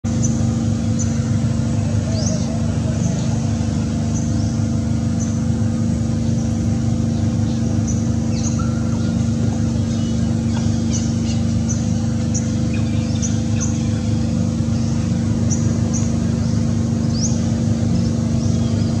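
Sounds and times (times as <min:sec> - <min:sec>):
low motor drone: 0:00.0 - 0:19.0
high bird chirps: 0:07.0 - 0:14.1.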